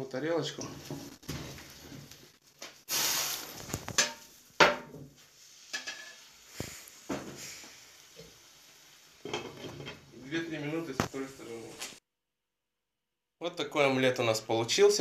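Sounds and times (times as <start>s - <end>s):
brief hiss of frying: 2.9s - 4.4s, 5.2s - 9.8s
pan and plate clattering: 3.9s - 5.0s, 5.7s - 6.2s, 9.2s - 10.1s.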